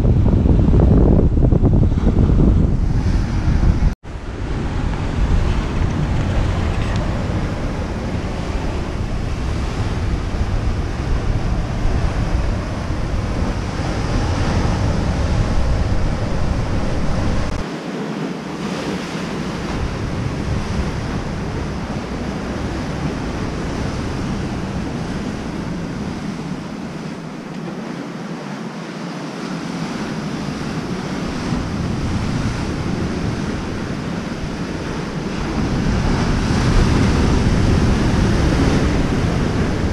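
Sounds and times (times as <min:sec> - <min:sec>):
wind rumble on microphone: 0:00.0 - 0:39.9
surf washing over rocks: 0:02.8 - 0:39.9.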